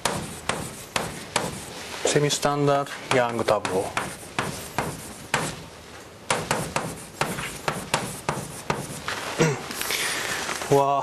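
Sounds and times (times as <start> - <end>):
chalk tapping and scraping on blackboard: 0.0 - 5.7, 6.3 - 9.2.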